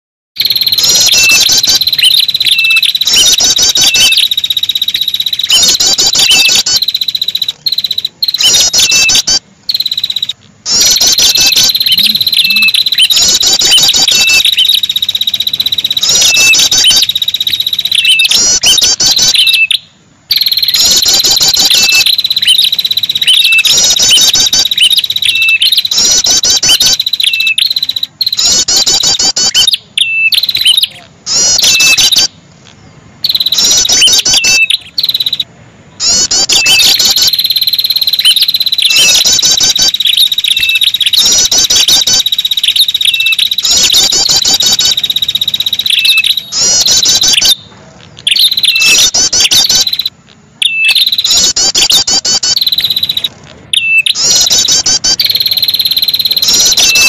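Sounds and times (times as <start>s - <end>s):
high-pitched insect-like drone: 0.4s - 19.4s, 20.3s - 29.7s
bird calling high notes: 0.4s - 32.4s, 33.2s - 57.0s.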